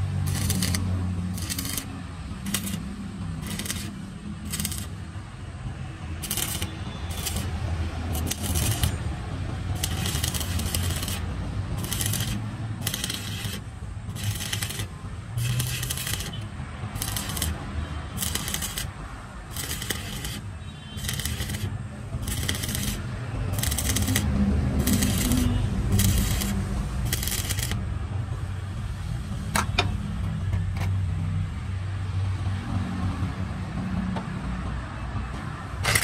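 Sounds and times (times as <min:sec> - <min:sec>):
welding arc crackling: 0:00.0 - 0:05.1, 0:06.1 - 0:27.9.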